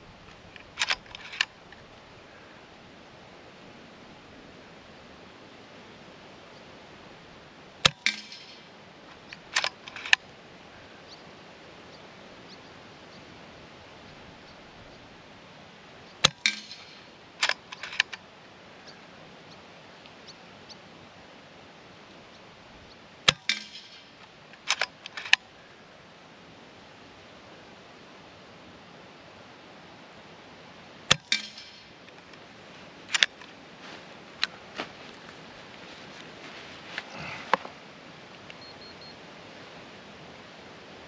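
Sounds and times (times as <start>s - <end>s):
rifle lever clicks: 0.6s - 1.5s, 9.3s - 10.2s, 16.2s - 18.2s, 24.6s - 25.4s, 33.1s - 33.5s.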